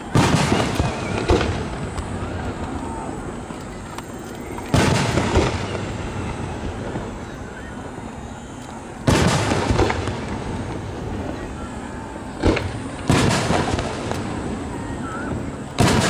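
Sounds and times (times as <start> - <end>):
firework shells bursting: 0.0 - 7.2, 9.0 - 11.4, 12.4 - 14.7, 15.7 - 16.0.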